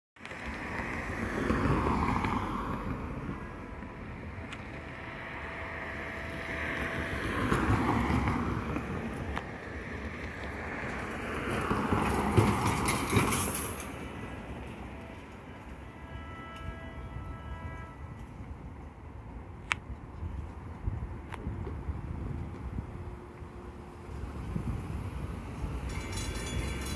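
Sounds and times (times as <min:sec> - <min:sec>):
vehicles passing: 0:00.2 - 0:26.9.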